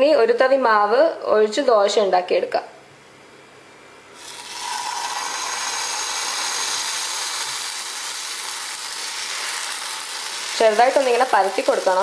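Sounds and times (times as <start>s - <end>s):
batter sizzling on a hot pan: 4.2s - 12.0s.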